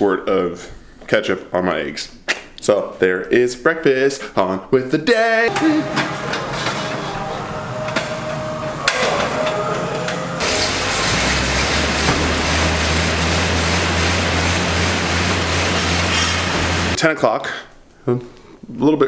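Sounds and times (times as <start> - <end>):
air bike fan rushing: 10.4 - 17.0.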